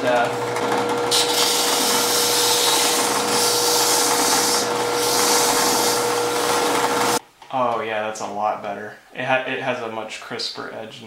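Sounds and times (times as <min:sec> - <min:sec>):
drill press humming: 0:00.0 - 0:07.2.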